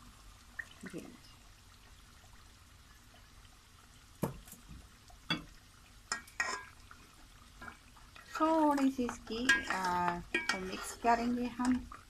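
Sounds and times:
utensils knocking against pot: 6.1s - 6.8s, 8.8s - 10.9s.

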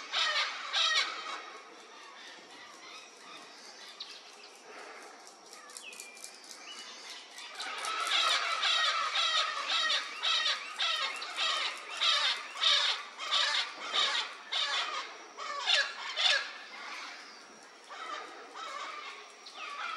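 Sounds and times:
parrot squawking calls: 7.6s - 17.2s.

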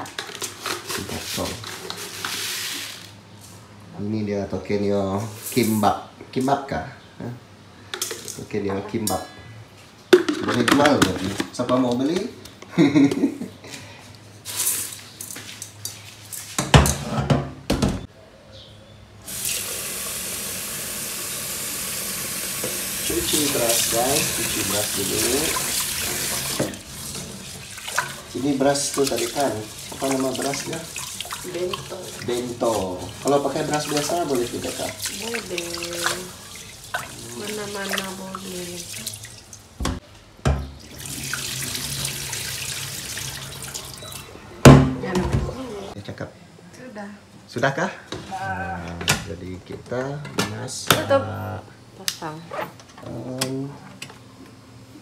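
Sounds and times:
tap water running into pot: 19.3s - 40.0s, 40.8s - 44.2s.

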